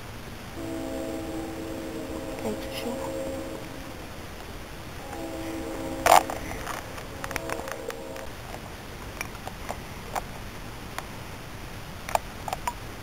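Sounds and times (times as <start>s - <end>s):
background hiss: 0.0s - 13.0s
faint held tone: 0.6s - 8.7s.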